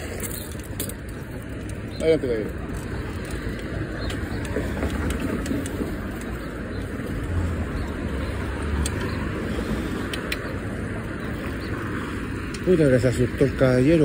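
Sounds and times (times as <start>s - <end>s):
bicycle tyres rolling on pavement: 0.0s - 14.0s
light clicks: 10.0s - 10.6s.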